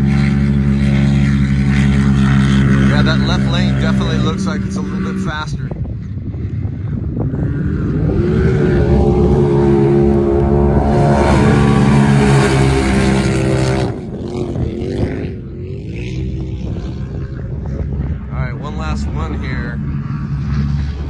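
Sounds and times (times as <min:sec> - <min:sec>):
utv engines racing past: 0:00.0 - 0:21.0.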